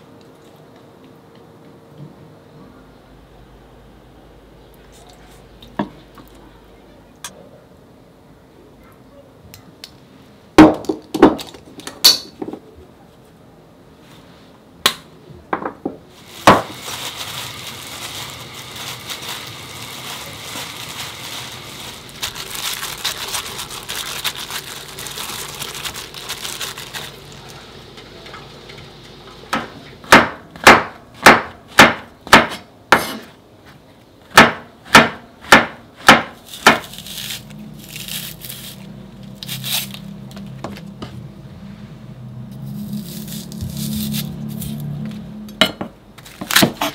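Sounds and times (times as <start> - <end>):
hands mixing dry leaves in bowl: 16.2 - 28.7, 36.4 - 40.8, 42.5 - 45.2
knife chopping on cutting board: 34.4 - 37.0.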